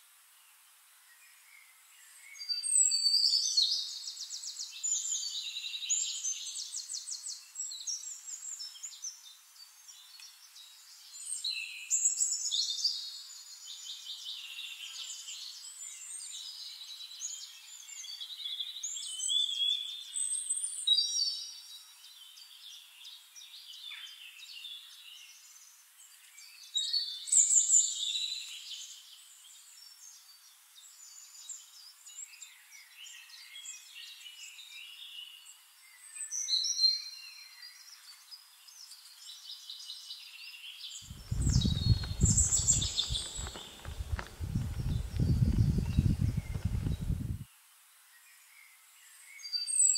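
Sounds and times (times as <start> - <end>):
birds chirping and trilling: 41.0 - 47.4.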